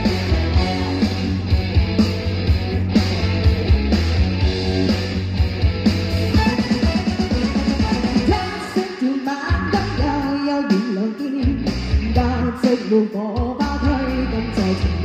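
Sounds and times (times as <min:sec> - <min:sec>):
rock backing music: 0:00.0 - 0:15.0
woman singing into microphone: 0:08.3 - 0:15.0.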